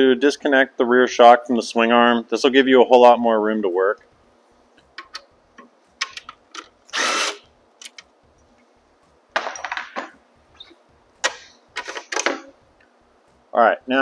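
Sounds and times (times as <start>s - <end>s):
cordless power tool bursts: 6.9s - 7.4s.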